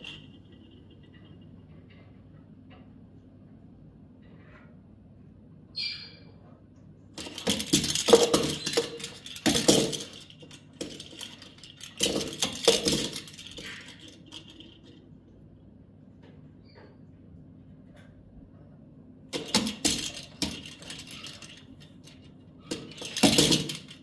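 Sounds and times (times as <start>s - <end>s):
plastic ball rattling: 0.0s - 1.3s, 7.2s - 15.1s, 19.3s - 24.0s
parrot squeak: 5.8s - 6.3s.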